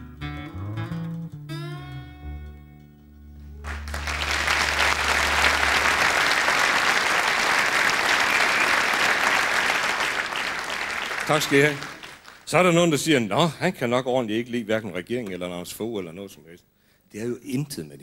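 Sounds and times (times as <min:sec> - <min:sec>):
audience applause: 0:03.6 - 0:12.5.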